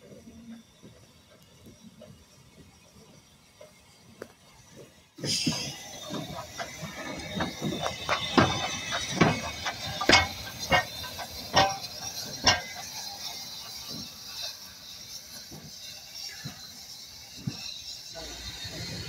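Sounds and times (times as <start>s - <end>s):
steam hiss: 0.0s - 19.0s
metallic clanks and knocks: 5.5s - 14.7s.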